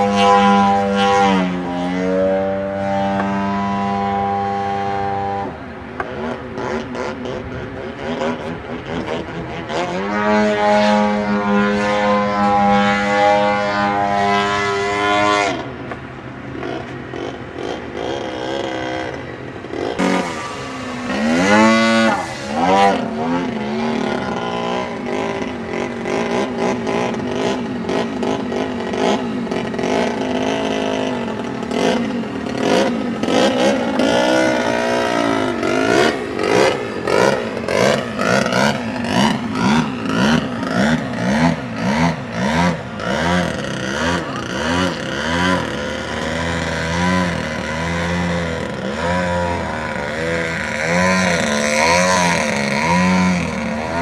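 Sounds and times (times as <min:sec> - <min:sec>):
model airplane motor: 0:16.6 - 0:54.0.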